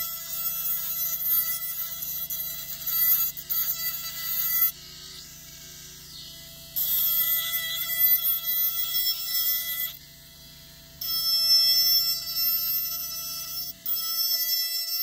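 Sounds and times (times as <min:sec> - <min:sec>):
handpiece grinding acrylic: 0:00.0 - 0:04.8, 0:06.1 - 0:10.0, 0:11.0 - 0:15.0
handpiece steady whine: 0:00.0 - 0:15.0.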